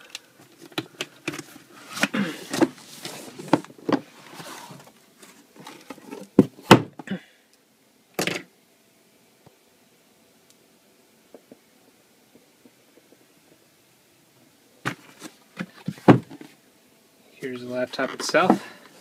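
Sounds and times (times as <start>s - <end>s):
cardboard rustle: 1.3s - 6.5s
cardboard rubbing and scraping: 1.7s - 5.4s.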